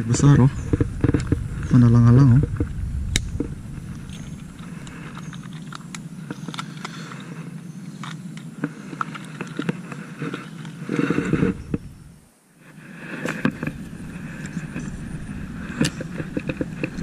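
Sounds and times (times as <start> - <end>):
wind rumble on microphone: 0.0 - 6.8, 11.1 - 12.2, 13.3 - 17.0
microphone handling clicks and rustles: 0.0 - 7.2, 8.0 - 12.1, 13.1 - 17.0.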